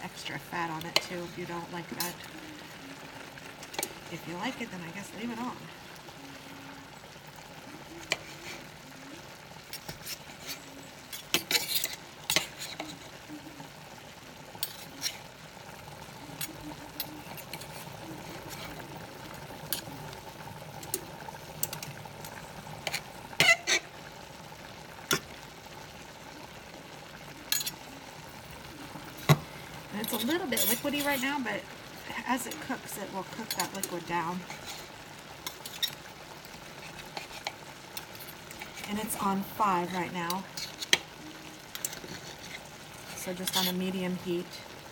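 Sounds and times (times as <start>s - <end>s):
faint food sizzling: 0.0s - 44.9s
cutlery scraping a metal pan: 8.0s - 8.6s, 9.7s - 13.2s, 14.6s - 15.3s, 16.4s - 18.8s, 22.8s - 23.8s, 27.5s - 27.8s, 30.0s - 31.3s, 33.3s - 36.1s, 36.8s - 39.2s, 40.3s - 41.1s, 41.7s - 43.9s.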